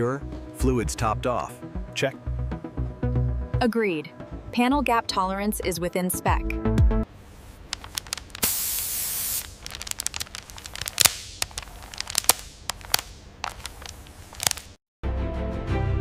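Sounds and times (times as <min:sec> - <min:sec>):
steady hiss: 0:07.1 - 0:14.8
plastic film crackling: 0:07.4 - 0:14.8.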